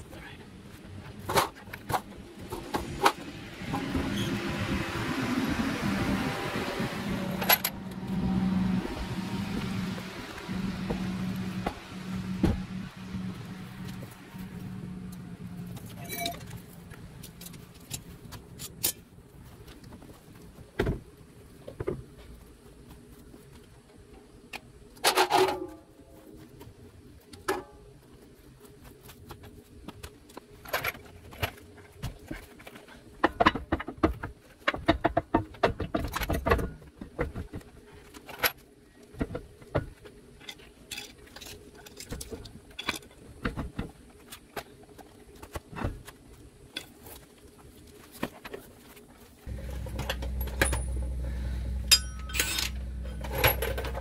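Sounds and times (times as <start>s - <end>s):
metal tools clinking: 15.8s - 16.6s, 49.5s - 54.0s
low rumble: 49.5s - 54.0s
metal clatter: 49.5s - 54.0s.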